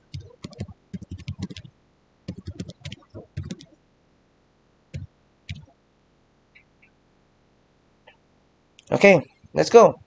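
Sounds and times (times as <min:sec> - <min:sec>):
computer keyboard typing: 0:00.1 - 0:01.7, 0:02.3 - 0:03.8, 0:05.0 - 0:05.7.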